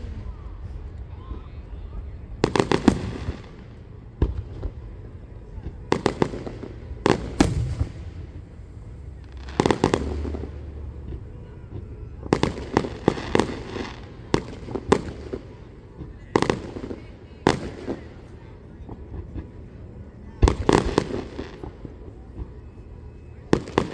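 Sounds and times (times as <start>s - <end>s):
fireworks bursting in bangs: 2.4s - 5.0s, 5.6s - 18.2s, 20.4s - 22.7s, 23.5s - 23.9s.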